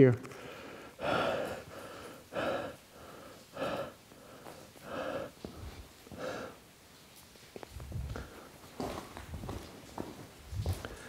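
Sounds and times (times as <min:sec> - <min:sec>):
man breathing hard: 0:00.3 - 0:06.7, 0:10.8 - 0:11.0.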